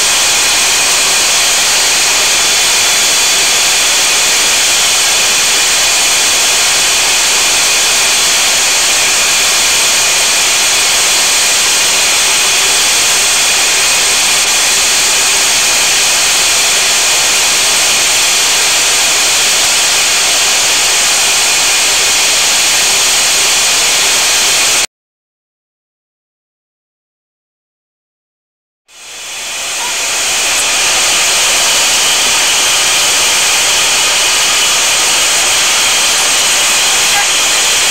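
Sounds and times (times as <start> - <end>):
aircraft engines rushing and whining: 0.0 - 24.9, 28.9 - 37.9.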